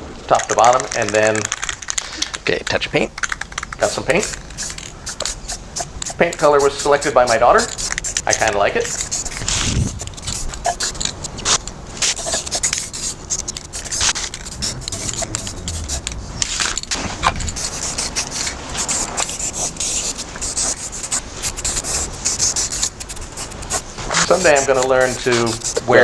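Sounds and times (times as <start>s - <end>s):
spray can hissing: 3.2s - 26.0s
wind on microphone: 9.3s - 10.6s, 13.8s - 18.2s.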